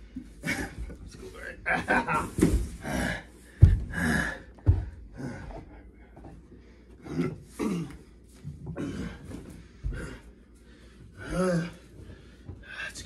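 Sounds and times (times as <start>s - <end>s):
men grunting: 0.4s - 3.3s, 11.2s - 11.8s.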